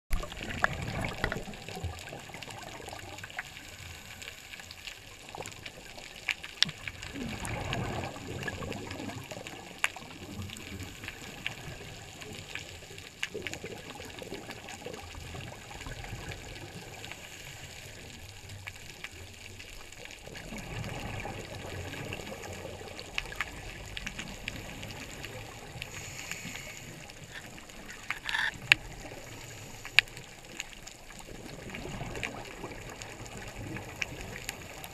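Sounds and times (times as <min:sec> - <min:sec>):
diver's exhaled bubbles gurgling: 0:00.1 - 0:34.9
sharp underwater clicks: 0:25.8 - 0:29.2.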